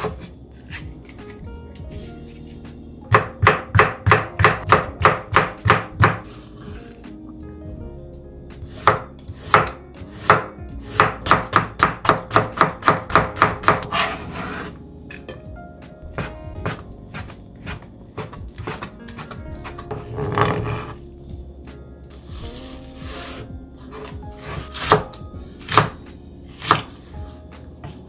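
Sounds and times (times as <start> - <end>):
faint background music: 0.0 - 28.0
knife chopping on cutting board: 3.1 - 6.3, 8.7 - 14.7, 16.2 - 20.9, 23.2 - 26.0, 26.6 - 27.0
knife scraping board: 13.7 - 14.8, 16.2 - 21.0, 22.1 - 25.0.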